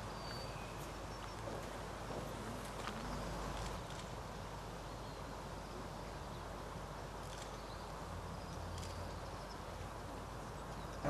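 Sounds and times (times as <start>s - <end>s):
outdoor background hiss: 0.0s - 11.0s.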